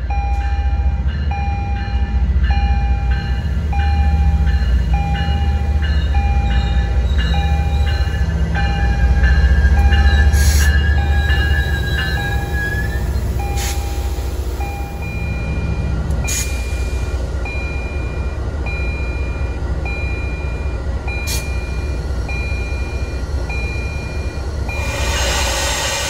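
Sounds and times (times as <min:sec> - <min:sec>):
diesel locomotive engine rumble: 0:00.0 - 0:26.0
high warning beep: 0:03.7 - 0:25.1
hissing burst: 0:24.8 - 0:26.0.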